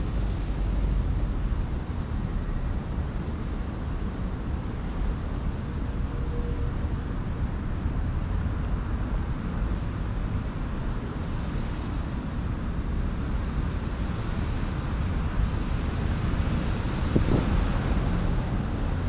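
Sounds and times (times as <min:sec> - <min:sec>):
wind buffeting microphone: 0:12.0 - 0:19.0.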